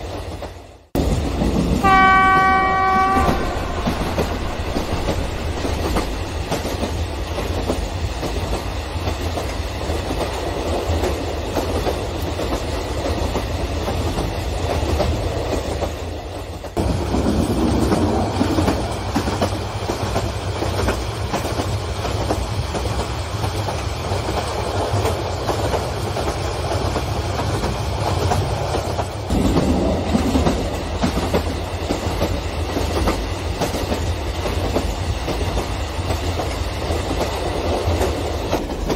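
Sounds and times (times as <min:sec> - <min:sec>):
model train cars rumbling: 0:01.0 - 0:12.6.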